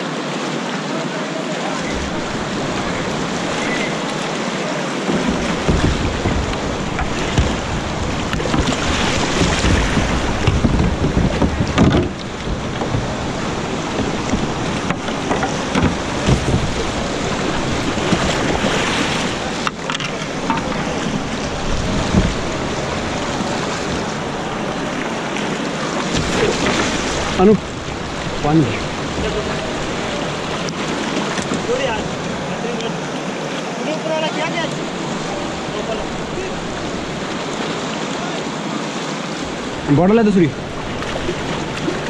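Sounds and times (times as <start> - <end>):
water splashes: 0.0 - 42.0
whitewater rushing and churning: 0.0 - 42.0
wind buffeting microphone: 1.8 - 4.4, 5.1 - 33.1, 34.6 - 37.8, 39.4 - 42.0.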